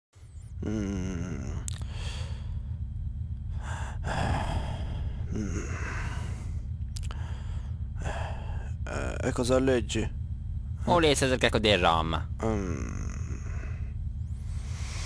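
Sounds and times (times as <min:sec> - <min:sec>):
airliner cabin drone: 0:00.2 - 0:15.0
person sighing and breathing: 0:00.6 - 0:02.6, 0:03.5 - 0:09.0.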